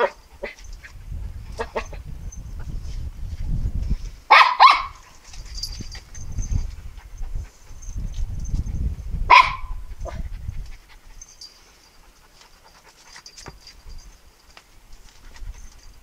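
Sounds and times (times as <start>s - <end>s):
dog barking: 0.0s - 0.6s, 4.3s - 5.0s, 9.3s - 10.2s
dog panting: 5.6s - 13.8s.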